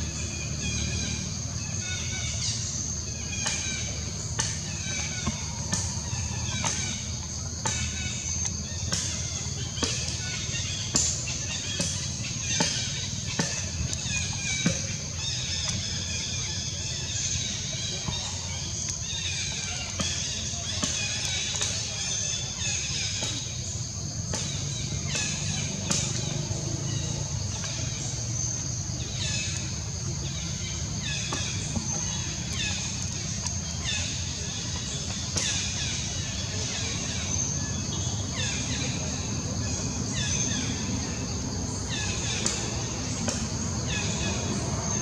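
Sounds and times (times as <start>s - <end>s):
high insect drone: 0.0s - 45.0s.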